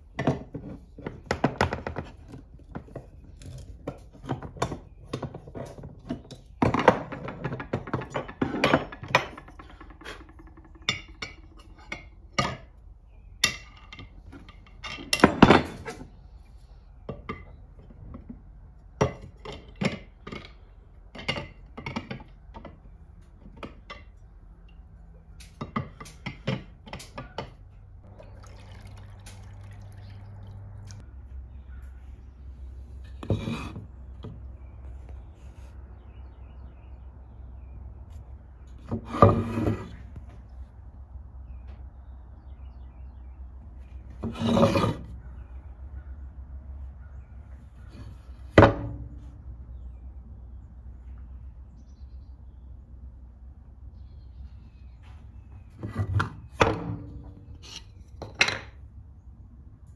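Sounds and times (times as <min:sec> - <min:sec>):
liquid pouring into glass dish: 0:28.1 - 0:30.6.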